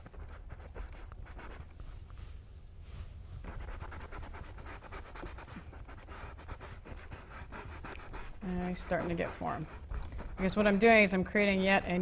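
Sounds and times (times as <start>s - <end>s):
low steady hum: 0.0s - 12.0s
paintbrush scrubbing on canvas: 3.4s - 11.2s.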